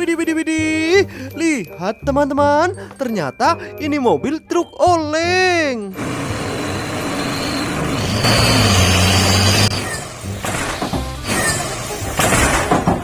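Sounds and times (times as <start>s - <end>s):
background music: 0.0s - 13.0s
truck diesel engine under load: 6.0s - 9.7s.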